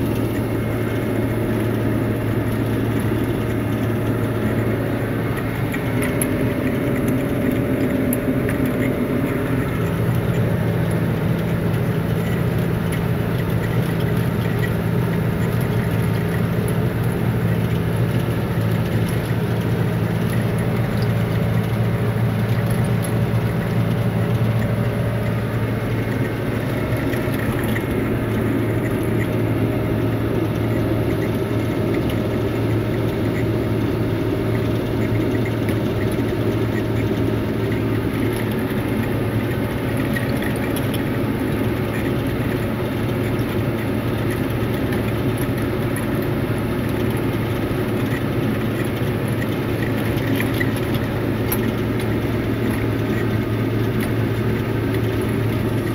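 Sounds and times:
tractor engine droning: 0:00.0 - 0:55.9.

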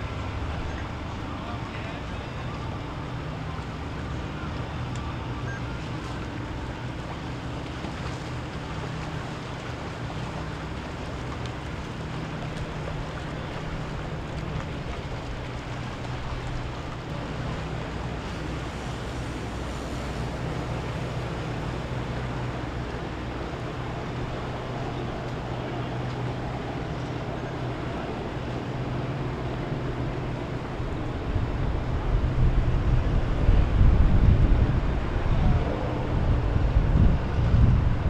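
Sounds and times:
motorboat engines droning: 0:00.0 - 0:38.0
water wash: 0:00.0 - 0:38.0
wind on microphone: 0:26.3 - 0:38.0.

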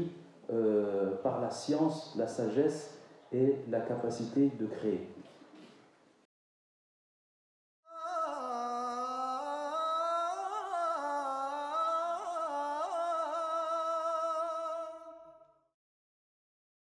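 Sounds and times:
person singing unaccompanied: 0:07.9 - 0:15.5.

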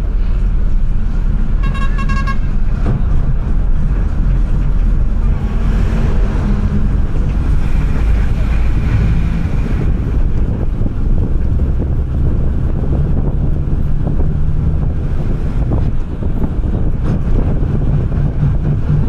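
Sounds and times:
heavy vehicle engine rumble: 0:00.0 - 0:19.0
tyres on concrete road: 0:00.0 - 0:19.0
horn toots: 0:01.6 - 0:02.7.

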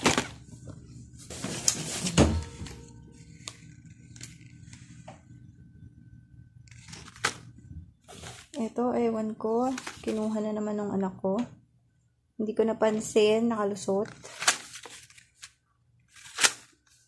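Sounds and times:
plastic wrappers crinkling: 0:00.0 - 0:00.5, 0:01.2 - 0:05.0, 0:06.7 - 0:08.7, 0:09.6 - 0:10.4, 0:13.8 - 0:17.0.

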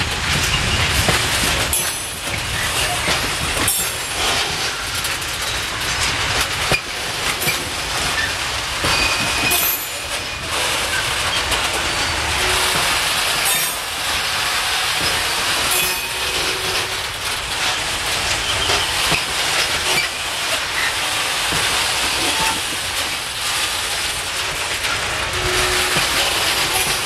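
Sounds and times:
steel wheels clattering over rail joints: 0:00.0 - 0:27.0
wheel squeals: 0:07.4 - 0:13.8, 0:18.2 - 0:21.0, 0:22.0 - 0:22.8, 0:24.8 - 0:27.0.

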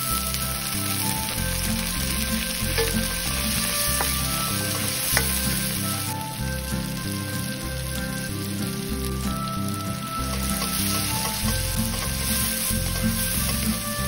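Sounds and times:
vegetables sizzling in oil: 0:00.0 - 0:14.0
spatula scraping a pan: 0:01.7 - 0:06.1, 0:10.1 - 0:14.0.

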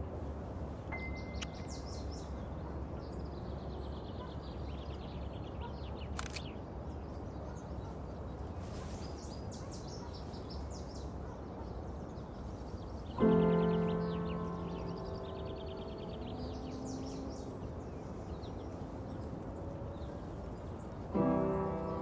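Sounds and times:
camera shutter click: 0:06.1 - 0:06.6.

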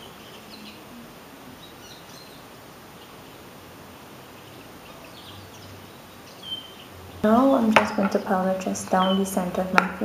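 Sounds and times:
faint bird chirps: 0:00.0 - 0:03.6, 0:04.2 - 0:07.3
steady background hiss: 0:00.0 - 0:10.0.

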